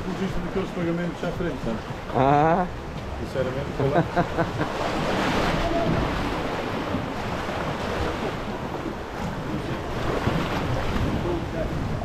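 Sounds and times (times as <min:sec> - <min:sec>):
water washing around boat: 0:00.0 - 0:12.0
wind buffeting microphone: 0:04.8 - 0:12.0.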